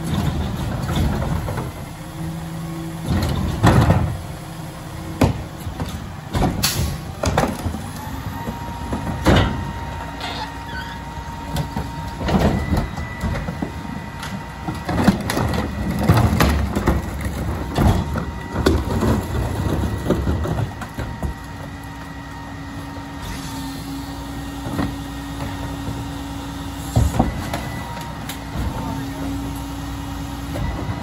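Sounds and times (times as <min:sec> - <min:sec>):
trash carts knocking against hopper: 0:00.0 - 0:01.9, 0:03.0 - 0:04.4, 0:05.0 - 0:10.2, 0:11.4 - 0:21.8
truck engine and hydraulics hum: 0:00.0 - 0:31.0.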